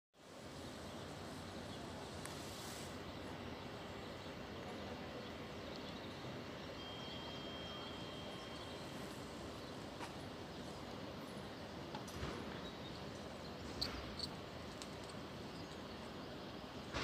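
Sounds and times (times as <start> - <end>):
outdoor background noise: 0.2 - 17.0
thin high whistle: 6.8 - 8.9.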